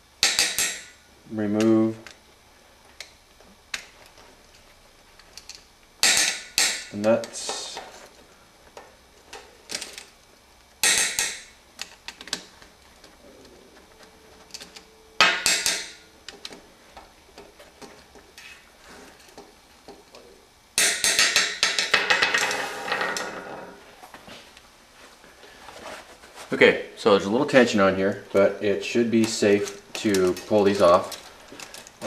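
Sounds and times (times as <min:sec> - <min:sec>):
metal parts clinking and rattling: 0:09.3 - 0:10.2, 0:10.8 - 0:16.6, 0:29.5 - 0:32.0.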